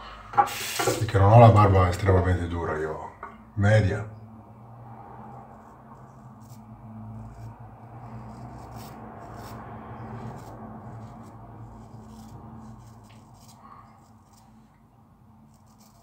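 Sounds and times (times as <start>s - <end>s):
razor scraping stubble: 5.3s - 14.6s, 15.4s - 16.0s.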